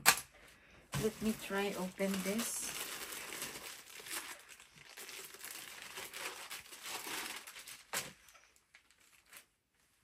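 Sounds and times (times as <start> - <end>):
plastic bag crinkling: 1.0 - 9.6.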